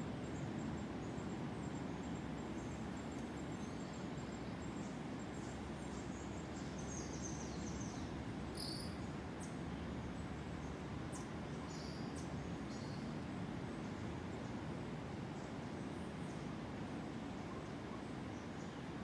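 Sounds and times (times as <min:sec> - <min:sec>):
insects calling: 0:05.3 - 0:09.5.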